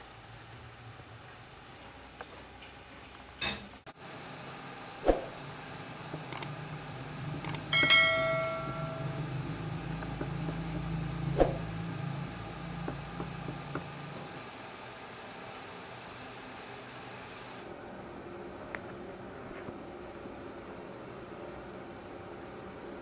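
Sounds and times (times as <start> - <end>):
steady low hum: 4.0 - 15.2
bell ding: 7.7 - 9.4.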